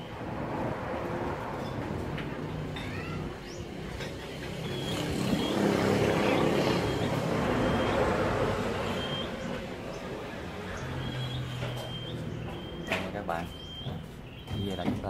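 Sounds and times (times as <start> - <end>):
passing vehicle rumbling: 0.0 - 14.8.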